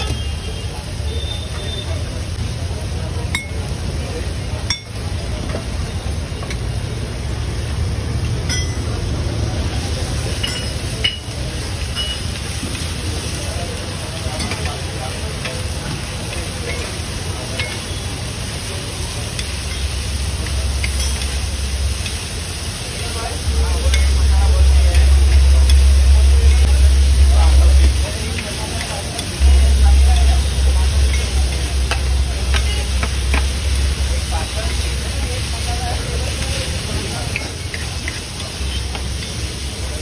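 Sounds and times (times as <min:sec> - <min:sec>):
food sizzling: 0:00.0 - 0:40.0
spatula clinking on iron: 0:10.4 - 0:12.3, 0:19.4 - 0:21.4
low steady hum: 0:23.4 - 0:28.6, 0:29.4 - 0:36.3.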